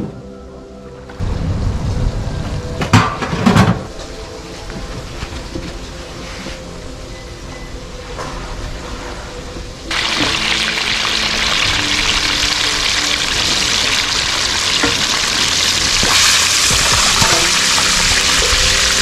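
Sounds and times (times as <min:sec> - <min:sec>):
oil sizzling and crackling: 0:09.8 - 0:19.0.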